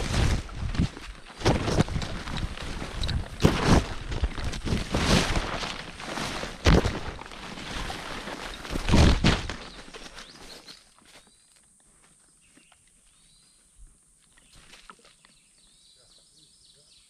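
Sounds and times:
footsteps on forest trail: 0.0 - 16.0
faint bird chirps: 9.6 - 17.0.

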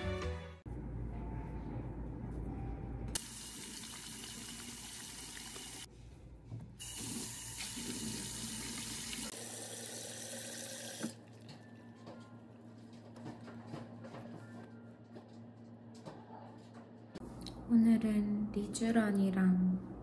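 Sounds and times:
tap water running into basin: 3.2 - 5.9, 6.8 - 11.5.

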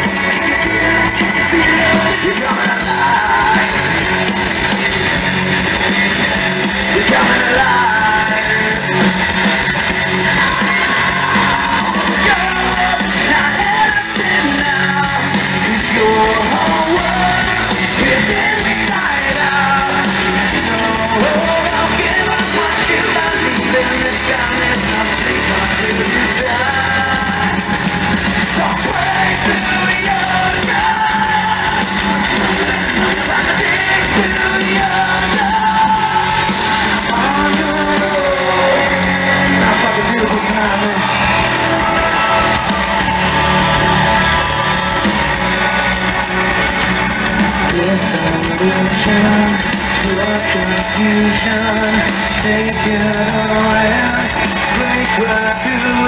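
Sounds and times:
person yelling and singing: 0.0 - 4.1, 6.8 - 9.1, 10.1 - 45.0
bass guitar: 0.0 - 56.0
drums: 0.0 - 56.0
electric guitar: 0.0 - 56.0.

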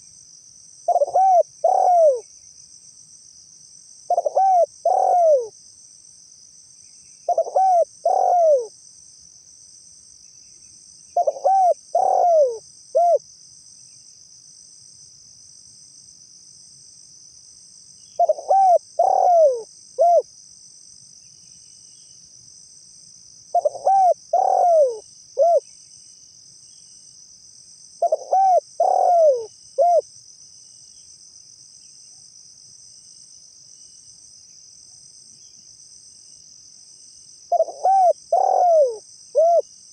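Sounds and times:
dove cooing: 0.9 - 2.2, 4.1 - 5.5, 7.3 - 8.7, 11.2 - 13.2, 18.2 - 20.2, 23.6 - 25.6, 28.0 - 30.0, 37.5 - 39.6.

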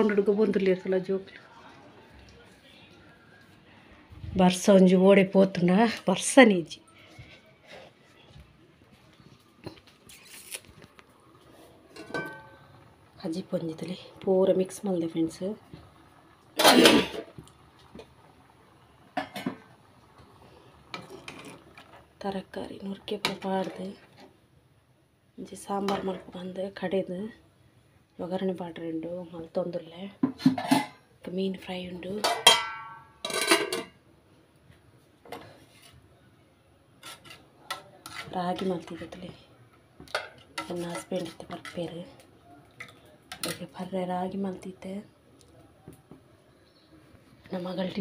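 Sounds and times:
metal pots and utensils clattering: 11.9 - 12.8, 16.5 - 18.1, 19.1 - 19.7, 20.9 - 22.1, 30.2 - 31.0, 32.2 - 34.0, 40.0 - 41.9.

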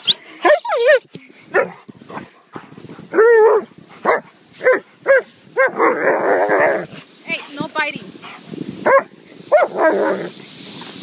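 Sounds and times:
sled dogs barking: 0.0 - 6.9, 8.3 - 10.3.

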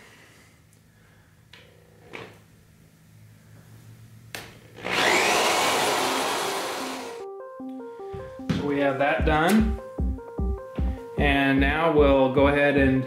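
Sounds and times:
cordless drill boring: 4.8 - 7.2.

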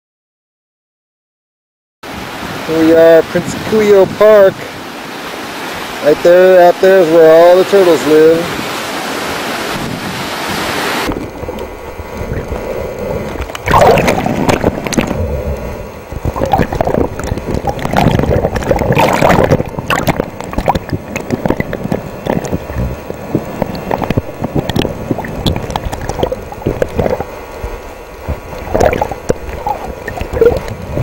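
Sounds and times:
wind on microphone: 2.1 - 4.8, 8.1 - 31.0
surf washing over rocks: 2.1 - 31.0
water splashes: 2.1 - 31.0
underwater sloshing and gurgling: 8.1 - 31.0.

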